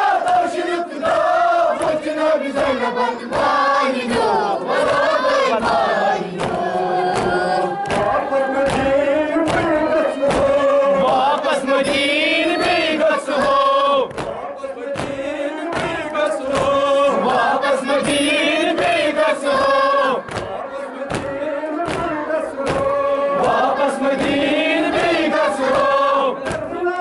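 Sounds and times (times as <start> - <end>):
crowd of men chanting: 0.0 - 27.0
hands slapping chests: 4.7 - 11.6, 12.6 - 17.4, 18.0 - 26.7.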